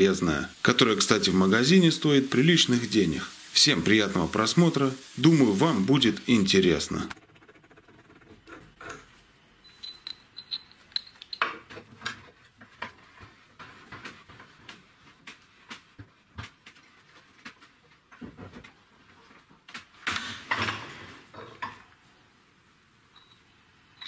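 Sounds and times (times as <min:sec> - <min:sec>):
metal clinks and taps: 0:09.6 - 0:11.7, 0:23.1 - 0:24.0.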